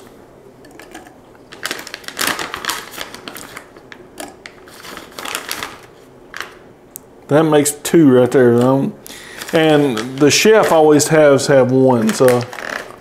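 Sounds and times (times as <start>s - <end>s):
snack package crinkling: 0.7s - 6.6s, 9.1s - 10.9s, 11.9s - 13.0s.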